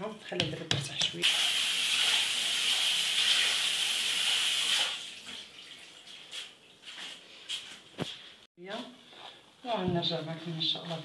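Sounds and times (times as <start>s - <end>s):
water running from a tap: 1.2s - 6.1s.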